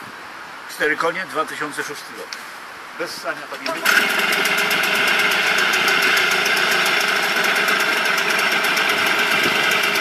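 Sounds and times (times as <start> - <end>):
outboard motor running: 3.6 - 10.0.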